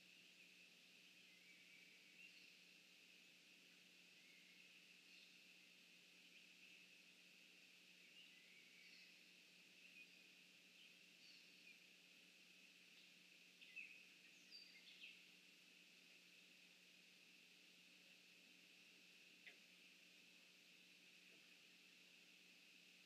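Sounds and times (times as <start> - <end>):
faint hiss: 0.0 - 23.0
faint bird chirps: 0.3 - 2.7, 4.0 - 5.5, 7.9 - 11.9, 12.9 - 15.4.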